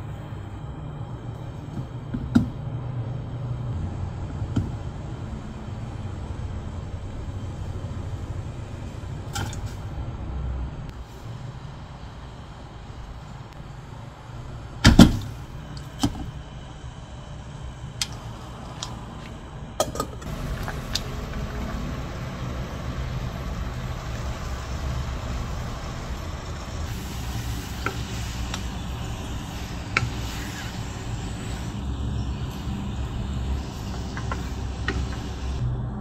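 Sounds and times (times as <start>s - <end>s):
low steady rumble: 0.0s - 36.0s.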